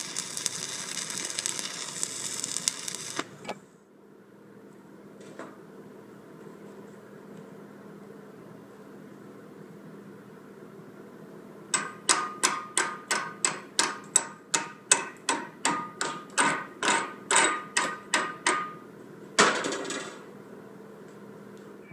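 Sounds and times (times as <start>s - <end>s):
hammer striking steel: 11.8s - 18.8s.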